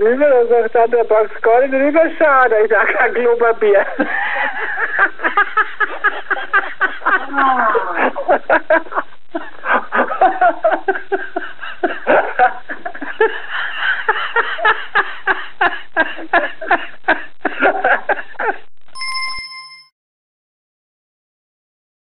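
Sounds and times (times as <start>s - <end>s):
people laughing: 2.7s - 18.7s.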